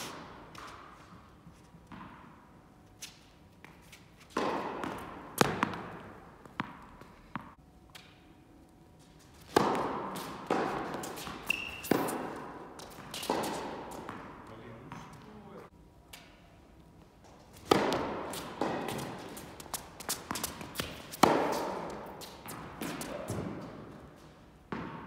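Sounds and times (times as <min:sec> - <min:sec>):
ball bouncing on court: 0:01.9 - 0:02.4, 0:04.3 - 0:08.1, 0:09.5 - 0:15.3, 0:17.7 - 0:23.7, 0:24.7 - 0:25.0
tennis ball struck by rackets: 0:04.3 - 0:08.1, 0:09.5 - 0:14.4, 0:17.6 - 0:23.7, 0:24.7 - 0:25.0
short high squeak: 0:11.4 - 0:11.9.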